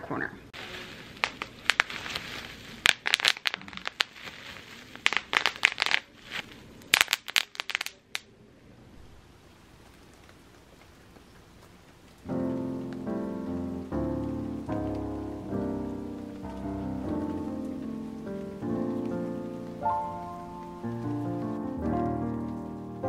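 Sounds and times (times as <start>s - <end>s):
plastic crinkling: 0.6s - 8.2s
bubble wrap popping: 0.6s - 8.3s, 9.8s - 23.0s
music: 12.3s - 23.0s.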